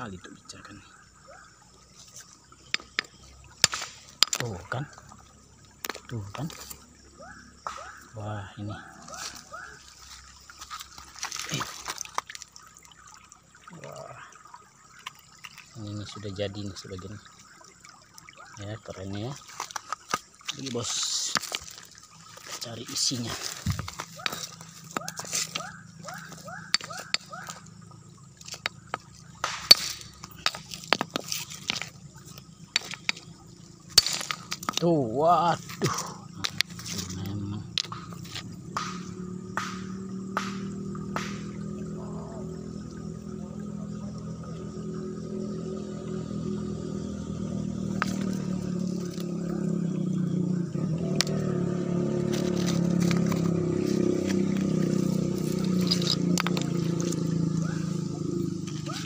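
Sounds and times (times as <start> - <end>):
stones knocking together: 2.1 - 5.1, 5.8 - 6.8, 9.0 - 12.4, 19.4 - 27.7, 28.4 - 41.6, 47.8 - 49.6, 52.2 - 57.4
stone crumbling crack: 2.7 - 4.5, 19.5 - 22.6, 23.4 - 27.6, 28.4 - 32.0, 32.7 - 33.3, 33.9 - 35.0, 52.3 - 53.5, 55.4 - 56.8
engine running: 35.6 - 59.0.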